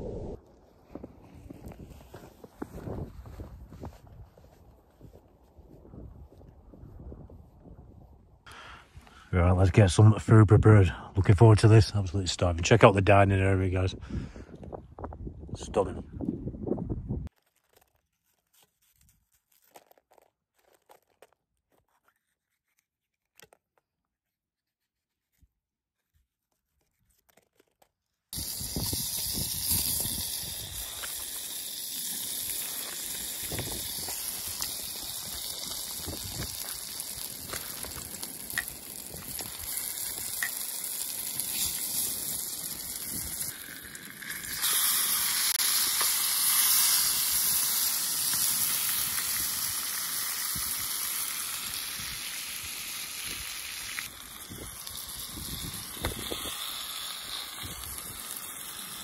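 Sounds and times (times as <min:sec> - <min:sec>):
food sizzling in a frying pan: 0:28.4 - 0:59.0.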